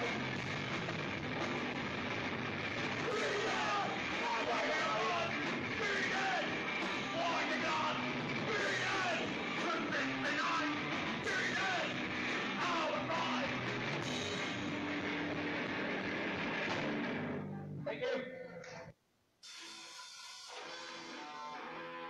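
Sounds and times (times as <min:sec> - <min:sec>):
punk rock song with shouted singing: 0:00.0 - 0:17.4.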